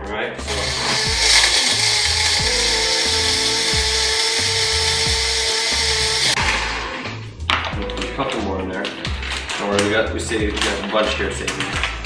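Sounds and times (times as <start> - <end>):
background music with low beat: 0.0 - 12.0
blender motor whirring: 0.5 - 7.1.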